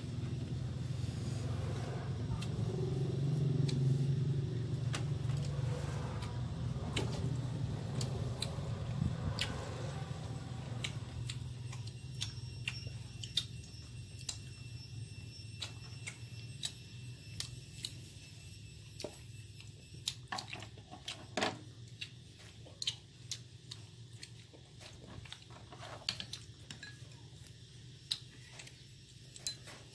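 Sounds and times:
low steady hum: 0.0s - 29.9s
person chewing: 3.5s - 14.7s, 21.8s - 29.7s.

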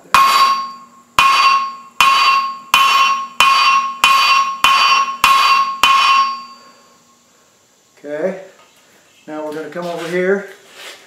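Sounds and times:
hammer striking steel on anvil: 0.0s - 6.8s.

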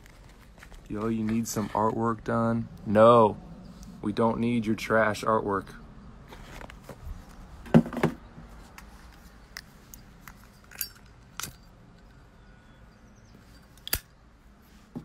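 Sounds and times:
light metallic clinks: 9.9s - 14.1s.

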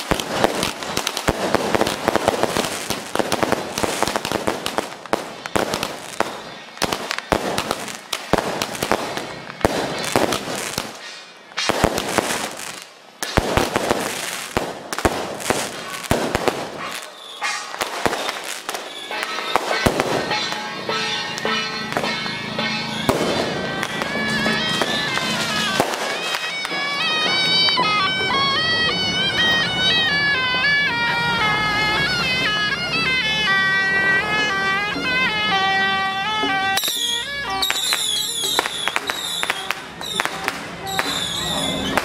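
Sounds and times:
firecrackers crackling: 0.0s - 42.0s
procession music: 13.7s - 42.0s.

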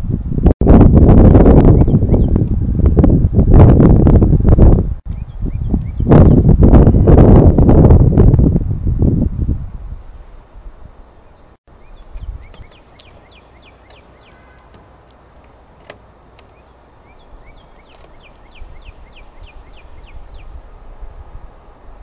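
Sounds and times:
songbird singing: 1.5s - 2.6s, 4.6s - 7.2s, 9.8s - 20.8s.

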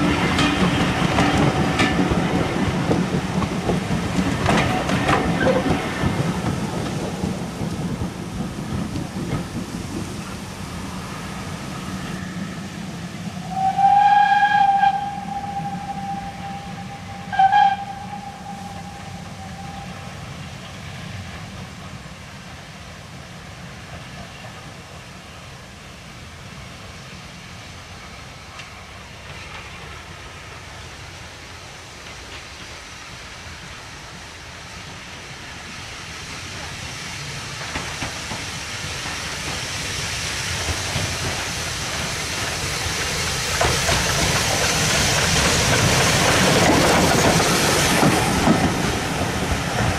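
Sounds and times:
steam train approaching: 0.0s - 49.9s
steam locomotive whistle: 13.4s - 20.2s.

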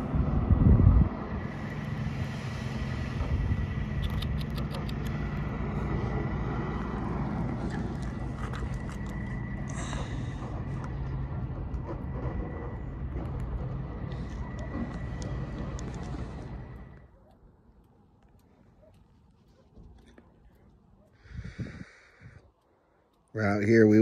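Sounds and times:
vehicle engine idling: 1.2s - 17.0s.

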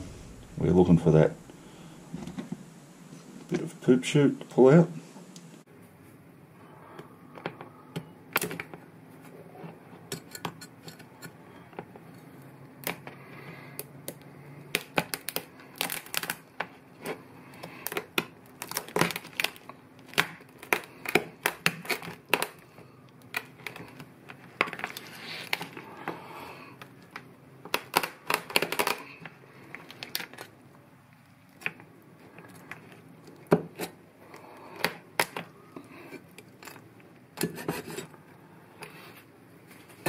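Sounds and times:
lobster shell cracking: 12.8s - 25.9s, 26.8s - 37.5s.

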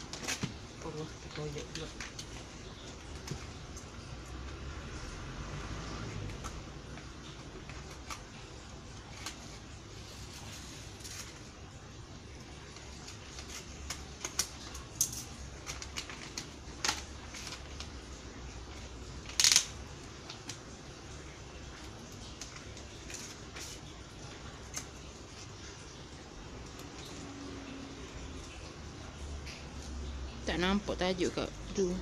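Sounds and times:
wrapping paper crinkling and tearing: 6.0s - 27.4s.

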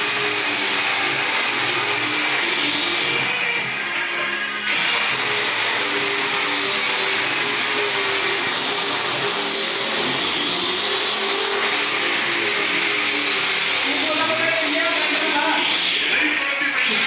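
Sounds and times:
angle grinder motor whine: 0.0s - 17.0s
sanding disc hissing on wood: 4.7s - 17.0s.

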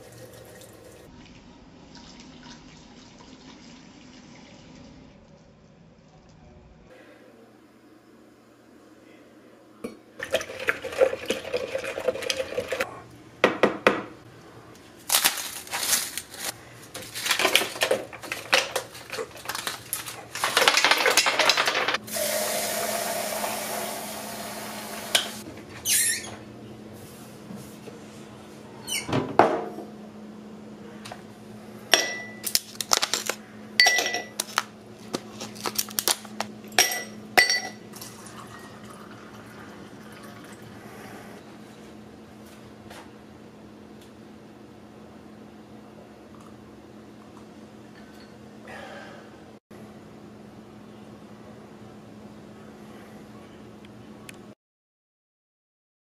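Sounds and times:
dishes and utensils clinking: 31.9s - 32.6s, 33.8s - 34.5s, 36.7s - 38.8s
glass ringing: 33.8s - 34.3s, 36.8s - 37.8s.

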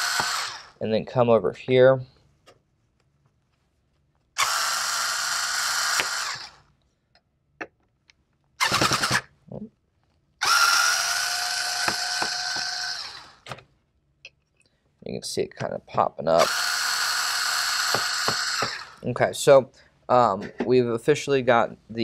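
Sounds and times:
electric screwdriver whining: 0.0s - 0.7s, 4.4s - 6.6s, 8.6s - 9.3s, 10.4s - 13.6s, 16.4s - 19.0s.

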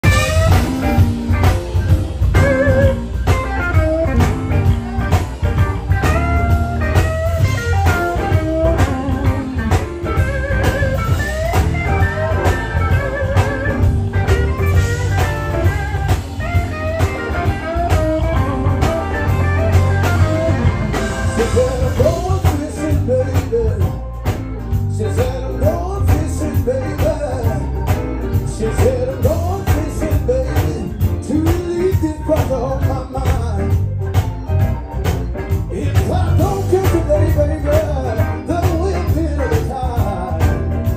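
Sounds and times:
electric blues band playing: 0.0s - 40.9s
man singing: 19.2s - 34.2s, 35.4s - 40.9s.

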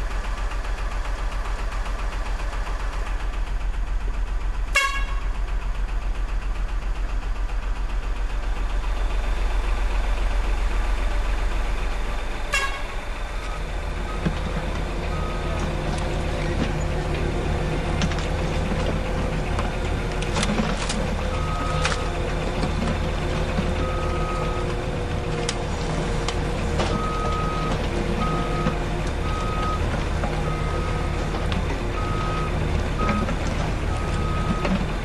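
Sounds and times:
truck engine rumbling: 0.0s - 35.0s
horn toots: 4.7s - 5.3s, 12.5s - 13.0s.

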